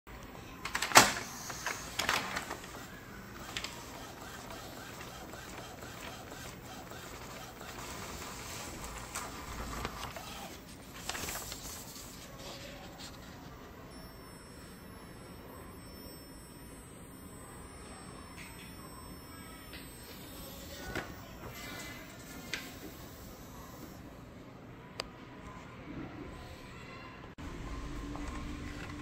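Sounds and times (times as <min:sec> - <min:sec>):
printer running: 0:00.2 - 0:24.2, 0:27.4 - 0:29.0
printer mechanical clacks: 0:00.6 - 0:12.2.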